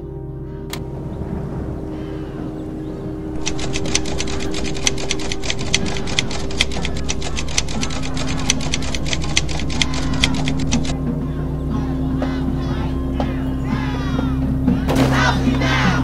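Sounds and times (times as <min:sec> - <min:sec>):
low steady drone: 0:00.0 - 0:16.0.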